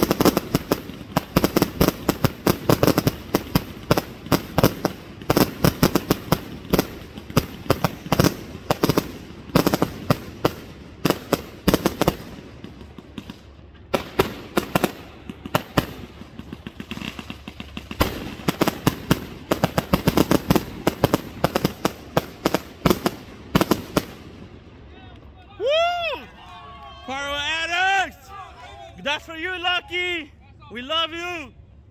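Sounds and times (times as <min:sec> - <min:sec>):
fireworks bangs and crackling: 0:00.0 - 0:24.9.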